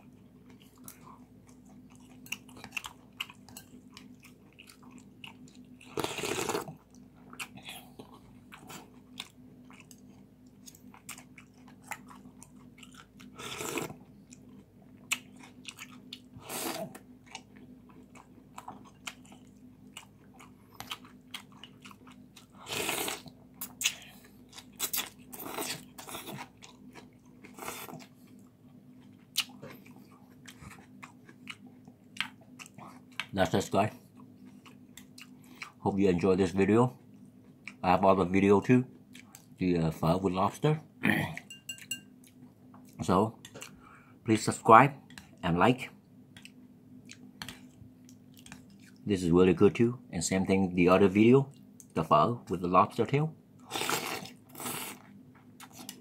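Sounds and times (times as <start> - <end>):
wet chewing with mouth clicks: 0.0 - 35.8, 39.1 - 39.6, 41.3 - 44.0, 45.0 - 45.4, 46.3 - 49.1, 53.6 - 56.0
slurping noodle soup: 5.9 - 6.8, 13.4 - 14.0, 16.4 - 17.0, 22.6 - 23.3, 53.7 - 55.0.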